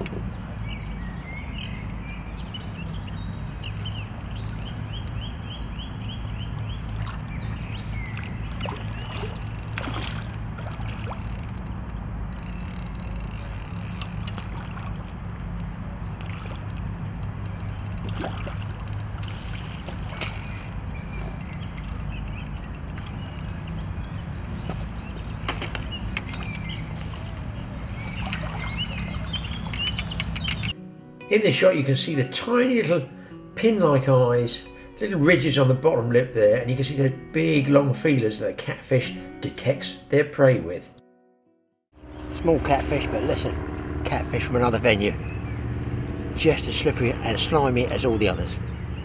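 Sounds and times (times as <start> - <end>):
water splashing and sloshing: 6.5 - 30.7
fish thrashing at the surface: 8.1 - 23.5.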